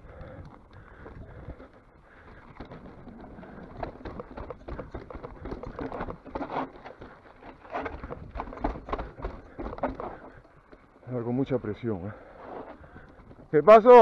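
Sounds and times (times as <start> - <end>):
bike parts rattling: 0.0 - 14.0
tyres clattering on rocks: 2.5 - 10.8.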